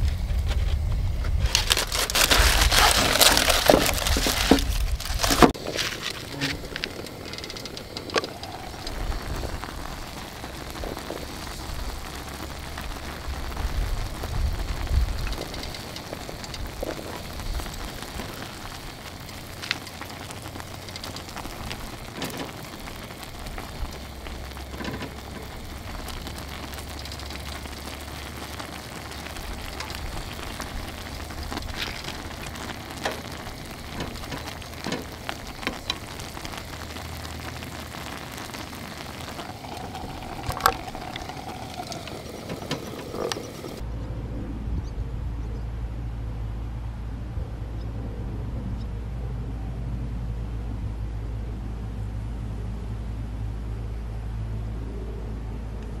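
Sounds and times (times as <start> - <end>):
broth boiling and bubbling: 0.0 - 43.9
low rumble: 0.0 - 56.0.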